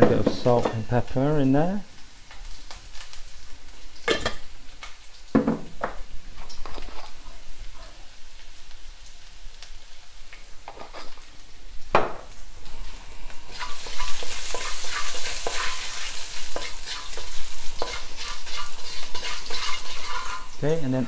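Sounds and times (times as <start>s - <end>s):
garlic sizzling in oil: 0.0s - 21.0s
wooden spatula scraping a pan: 6.4s - 7.4s, 10.7s - 11.2s, 13.5s - 20.6s.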